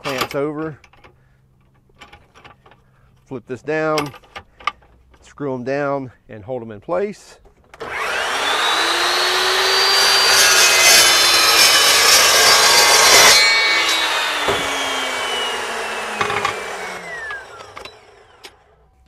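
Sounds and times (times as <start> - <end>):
saw blade cutting steel: 7.8 - 18.5
saw blade winding down whine: 7.8 - 18.8.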